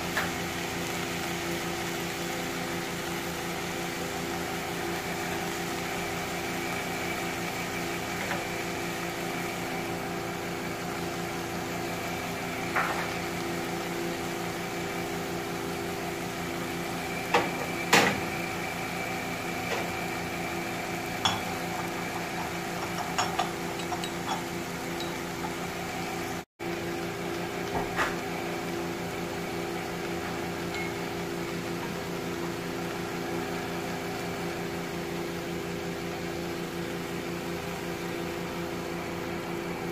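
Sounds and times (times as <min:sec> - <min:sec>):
steady mechanical hum: 0:00.0 - 0:39.9
metal spoon clinking against pot: 0:22.8 - 0:25.2.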